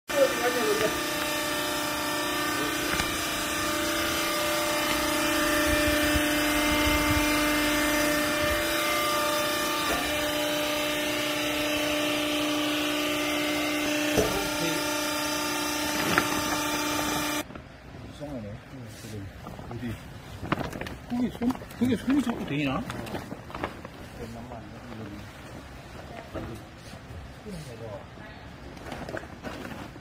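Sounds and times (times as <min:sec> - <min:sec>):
hydraulic motor and pump hum: 0:00.1 - 0:18.0.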